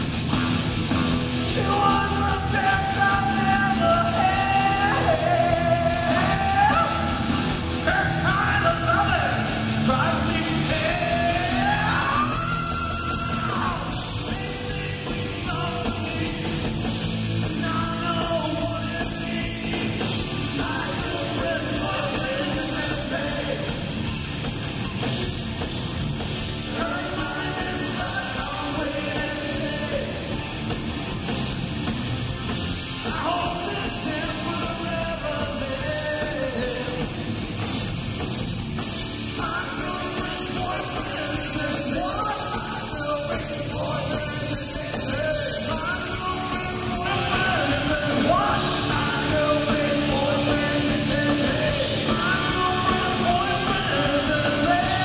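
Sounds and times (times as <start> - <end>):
hard rock band playing: 0.0 - 55.0
shouted sung vocals: 1.5 - 16.4, 39.4 - 55.0.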